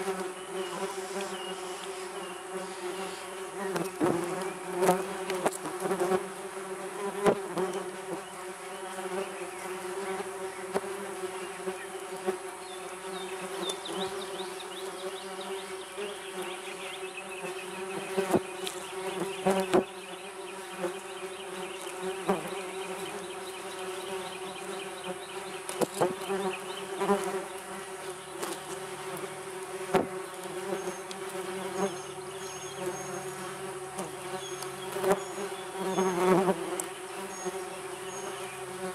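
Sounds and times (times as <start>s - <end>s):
wasps buzzing: 0.0s - 38.9s.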